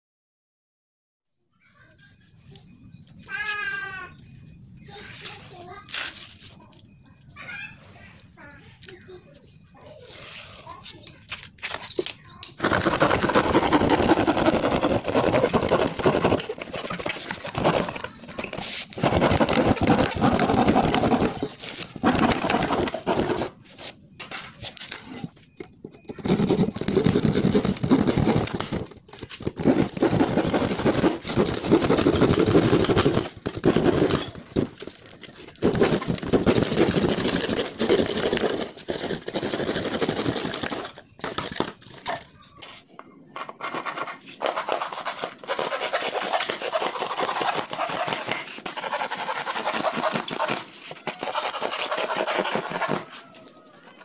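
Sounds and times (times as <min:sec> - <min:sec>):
hand saw cutting plywood: 0:12.6 - 0:23.9, 0:26.0 - 0:41.7, 0:43.4 - 0:53.5.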